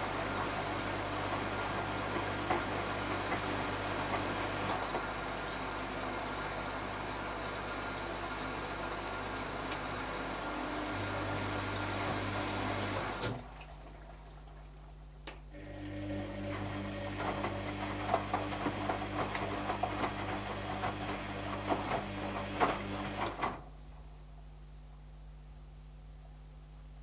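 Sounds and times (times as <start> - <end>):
washing machine drum motor humming: 0.0 - 14.6, 15.2 - 23.7.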